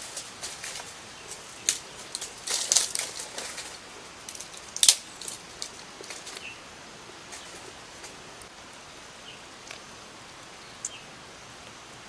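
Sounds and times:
twigs and leaves crackling: 0.0 - 8.6.

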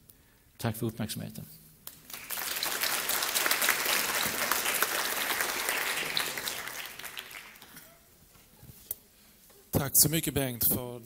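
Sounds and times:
audience applauding: 2.0 - 8.0.

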